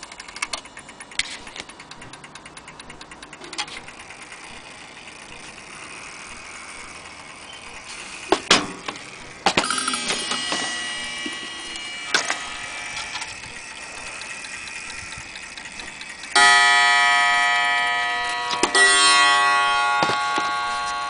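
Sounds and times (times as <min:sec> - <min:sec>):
clock gong ringing: 0:09.6 - 0:21.0.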